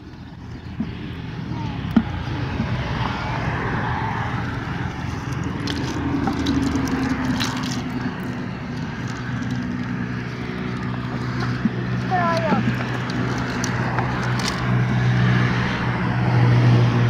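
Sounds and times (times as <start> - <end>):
low engine hum: 0.0 - 17.0
cast net clicks and rustling: 4.4 - 15.1.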